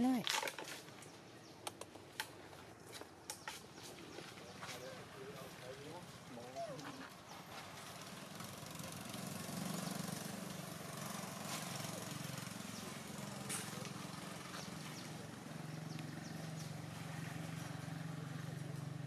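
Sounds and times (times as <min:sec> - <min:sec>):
outdoor background noise: 0:00.0 - 0:19.0
motorbike engine passing by: 0:04.8 - 0:19.0.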